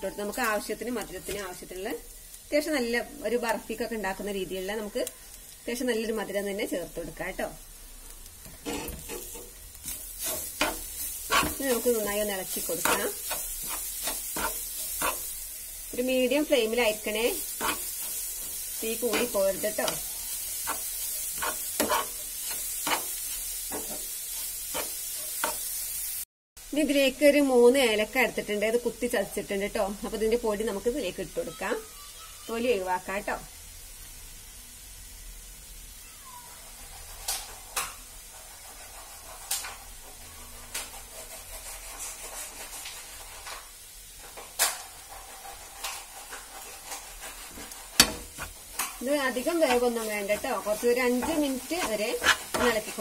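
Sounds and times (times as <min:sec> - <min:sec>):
faint sizzle: 0:00.0 - 0:53.0
spoon scraping frying pan: 0:08.5 - 0:25.8, 0:44.3 - 0:53.0.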